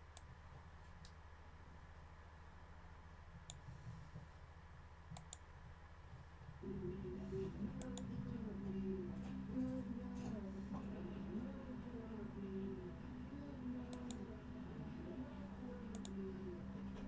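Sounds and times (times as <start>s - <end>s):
computer mouse clicks: 3.4s - 3.7s, 5.1s - 5.5s, 13.9s - 14.2s, 15.9s - 16.2s
low wavering pitched tone: 6.6s - 17.0s.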